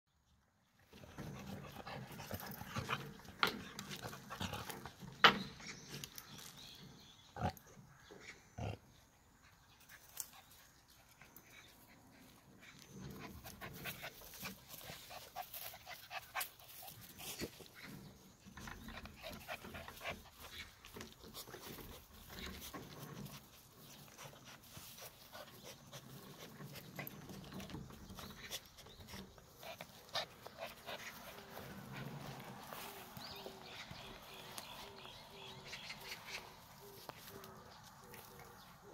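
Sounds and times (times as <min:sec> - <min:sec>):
dogs play-wrestling: 0:00.9 - 0:06.2, 0:09.8 - 0:35.0.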